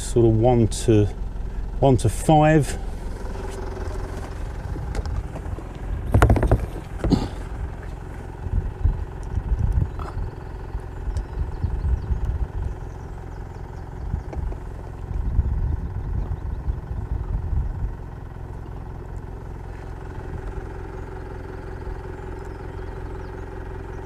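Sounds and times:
wind buffeting microphone: 0:04.0 - 0:10.4, 0:11.1 - 0:12.9, 0:14.0 - 0:18.1.

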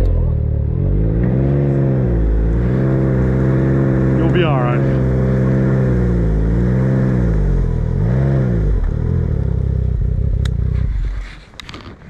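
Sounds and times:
snowmobile engine revving: 0:00.0 - 0:11.8.

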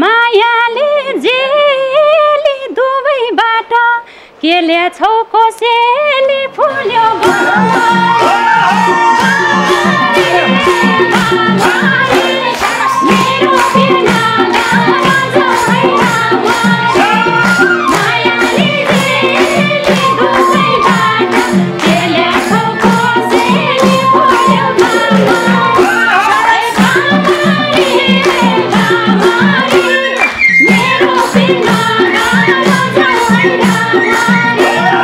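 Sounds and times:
hand drums beating: 0:07.1 - 0:35.0
flute melody: 0:07.2 - 0:11.8, 0:16.8 - 0:18.4, 0:19.9 - 0:21.6, 0:22.6 - 0:26.6, 0:29.8 - 0:31.0, 0:31.9 - 0:35.0
hands clapping in time: 0:07.2 - 0:24.7, 0:25.4 - 0:34.4.

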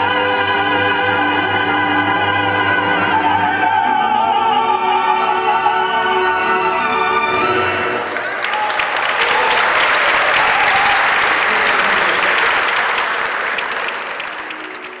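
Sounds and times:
audience applauding: 0:07.9 - 0:15.0.

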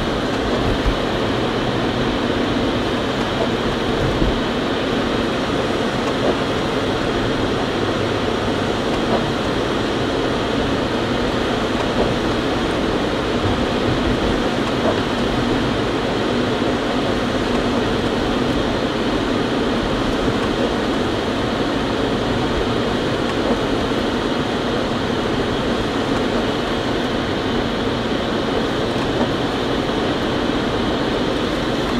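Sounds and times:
tyre noise on wet road: 0:00.0 - 0:31.9.

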